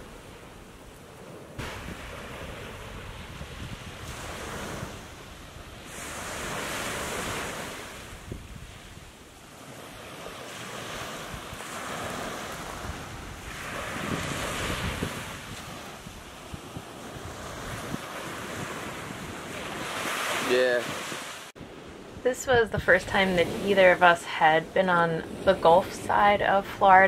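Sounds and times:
wind rumble on microphone: 0.0 - 24.2
waves breaking on beach: 0.0 - 27.0.

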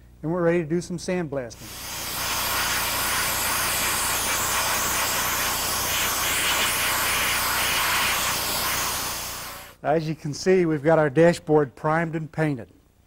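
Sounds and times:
sandblaster hissing: 1.6 - 9.8.

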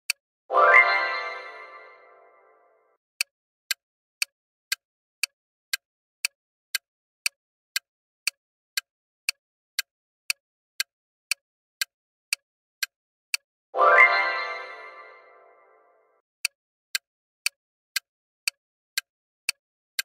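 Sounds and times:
countdown timer ticking: 0.1 - 2.7, 12.8 - 16.0
chime: 0.5 - 2.6, 13.8 - 15.9.

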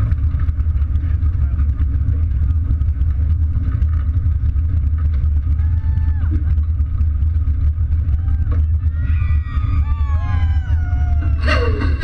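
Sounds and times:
faint crowd chatter: 0.6 - 4.0.

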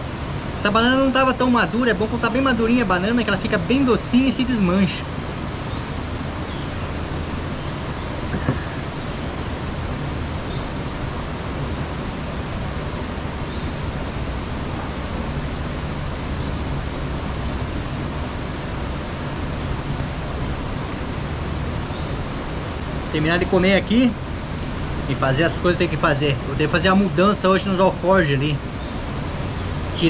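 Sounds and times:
steady rushing noise: 0.0 - 30.0
brief knock: 8.3 - 8.7.

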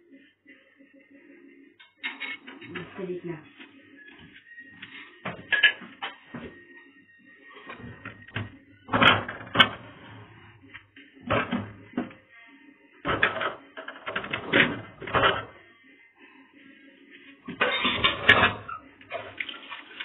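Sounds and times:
crockery and utensils clattering: 1.8 - 3.0, 5.3 - 6.2, 7.6 - 10.2, 11.2 - 12.1, 13.1 - 15.5, 17.5 - 20.0.

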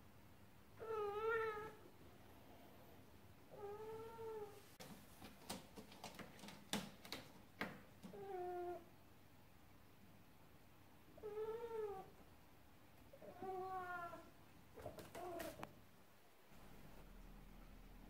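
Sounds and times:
cat meowing: 0.8 - 1.8, 13.2 - 15.6.

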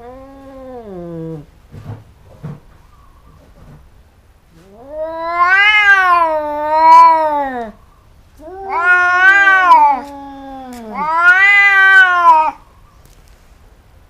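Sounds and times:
cats yowling: 0.0 - 1.5, 4.6 - 7.8, 8.4 - 12.6.

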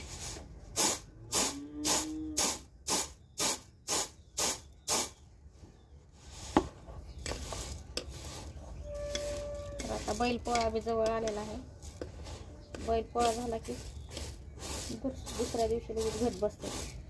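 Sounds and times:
grain swishing in steel plate: 6.2 - 17.0.

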